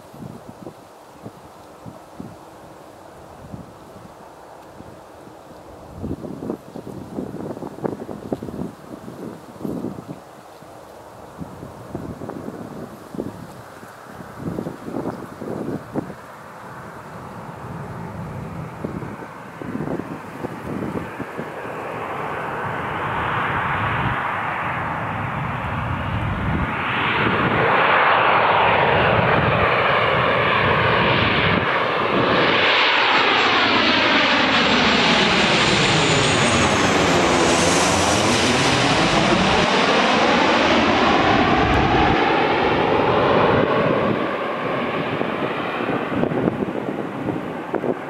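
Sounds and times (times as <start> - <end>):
jet airliner passing overhead: 0.0 - 48.0
high jet whine: 17.8 - 48.0.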